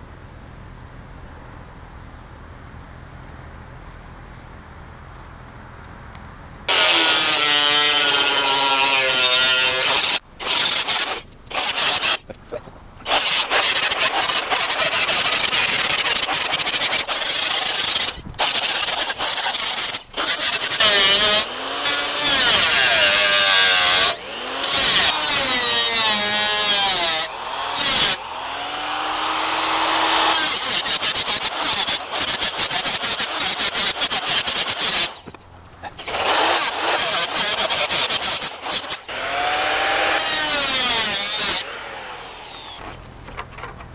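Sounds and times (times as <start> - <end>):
angle grinder cutting steel: 6.7 - 12.3, 13.0 - 42.8.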